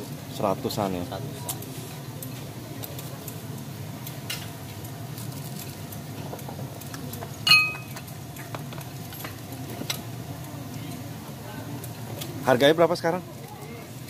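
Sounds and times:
ceramic bowls and spoons clinking: 0:07.4 - 0:08.0.

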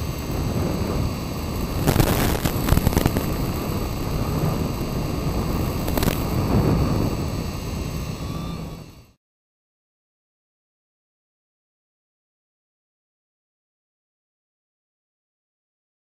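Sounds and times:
model airplane rushing noise: 0:00.0 - 0:09.2
radio crackling: 0:00.0 - 0:09.2.

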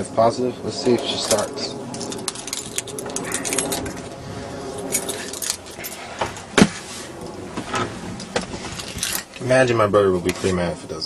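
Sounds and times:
keys jangling: 0:01.3 - 0:04.2, 0:04.8 - 0:06.0, 0:08.8 - 0:09.4.

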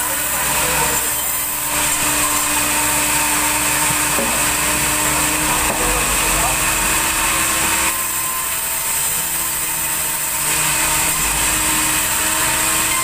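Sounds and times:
band saw cutting log: 0:00.0 - 0:13.0
machine hum: 0:00.0 - 0:13.0.

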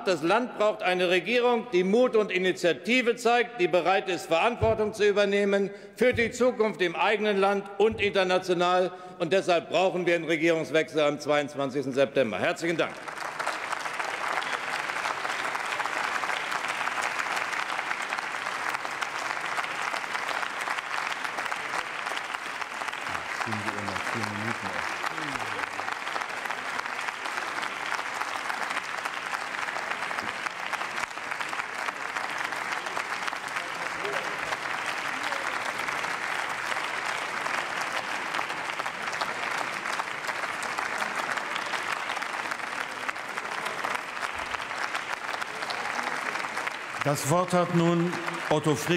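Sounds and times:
crowd applauding: 0:12.6 - 0:48.9.

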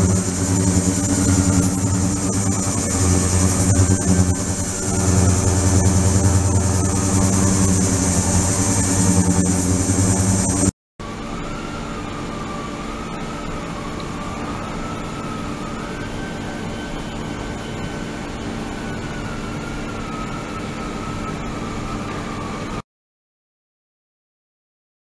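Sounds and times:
ultrasonic cleaner hiss and hum: 0:00.0 - 0:18.1
wavering high tone: 0:00.0 - 0:22.8.

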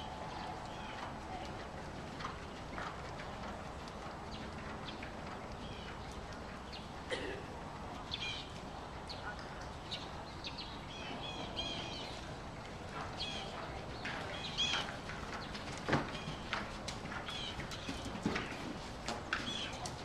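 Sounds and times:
small birds chirping: 0:00.0 - 0:07.2, 0:07.8 - 0:18.8, 0:19.4 - 0:20.0
horse hoofbeats cantering: 0:00.0 - 0:20.0.

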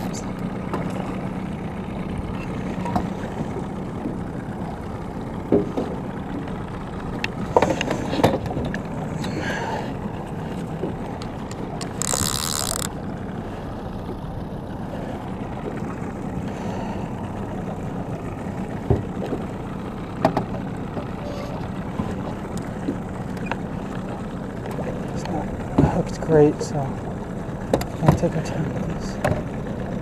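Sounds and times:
outboard motor running: 0:00.0 - 0:30.0.

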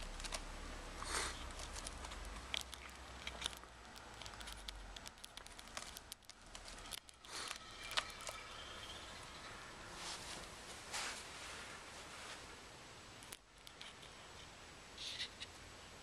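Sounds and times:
kitten claws scratching rope: 0:00.0 - 0:08.9.

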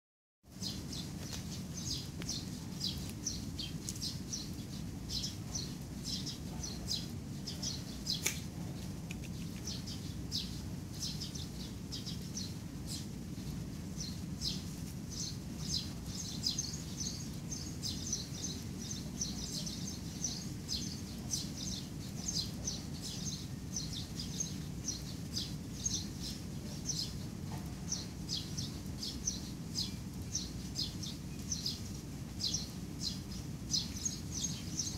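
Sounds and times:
small birds chirping: 0:00.5 - 0:34.9
sharp click: 0:08.2 - 0:08.5.

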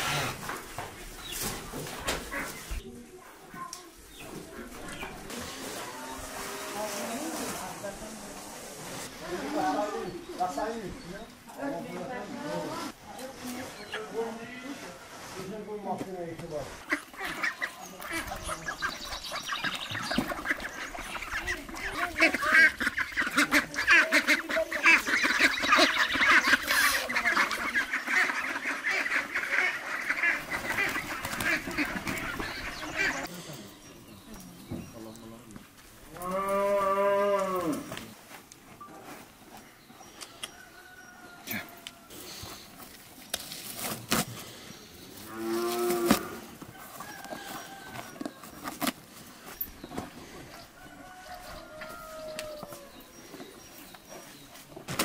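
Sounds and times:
ducks quacking: 0:01.9 - 0:02.8, 0:16.8 - 0:33.4
cow mooing: 0:36.2 - 0:37.9
rope rustling through saddle: 0:41.3 - 0:54.8.

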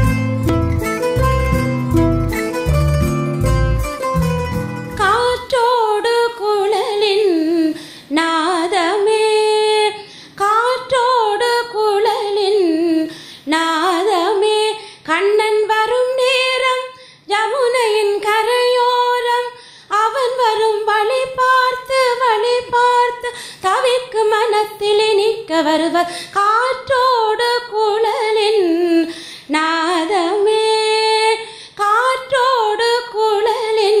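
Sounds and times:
woman breathing: 0:07.8 - 0:08.1, 0:10.0 - 0:10.4, 0:13.1 - 0:13.5, 0:19.6 - 0:19.9, 0:23.3 - 0:23.6, 0:29.1 - 0:29.5, 0:31.4 - 0:31.8.

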